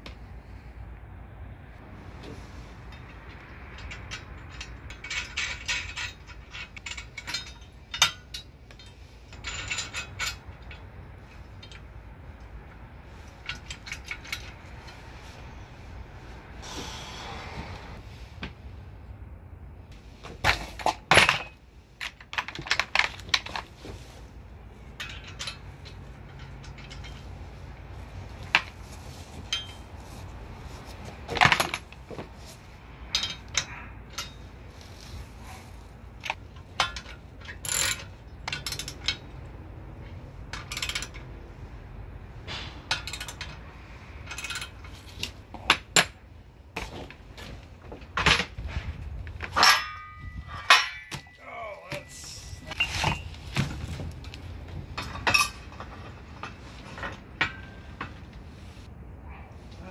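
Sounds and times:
steel bolts clinking in tray: 0:02.9 - 0:10.8, 0:24.9 - 0:27.3, 0:49.4 - 0:53.3.

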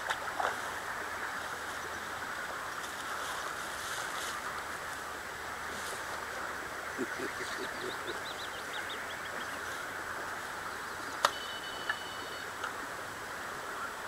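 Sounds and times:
water noise: 0:00.0 - 0:14.0
wind: 0:00.0 - 0:14.0
bird chirps: 0:07.0 - 0:09.7.

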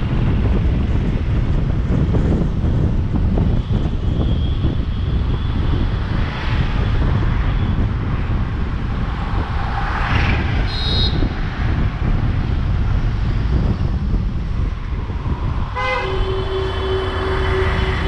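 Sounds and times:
car road and wind rumble: 0:00.0 - 0:18.0
rushing noise: 0:02.0 - 0:18.0
high-pitched horn beep: 0:15.8 - 0:18.0.

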